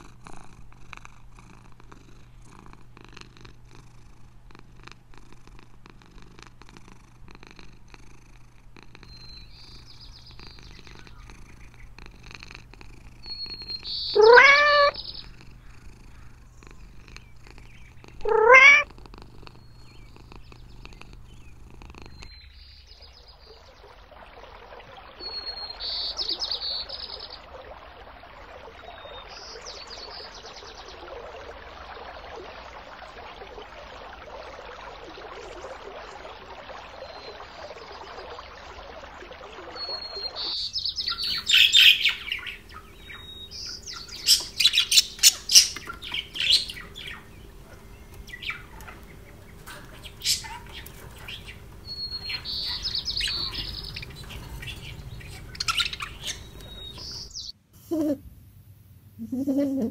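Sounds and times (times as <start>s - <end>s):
low steady hum: 6.5s - 59.9s
budgerigars chirping and squawking: 13.2s - 16.4s, 17.1s - 18.9s, 39.8s - 57.5s
aquarium water hiss: 23.5s - 58.0s.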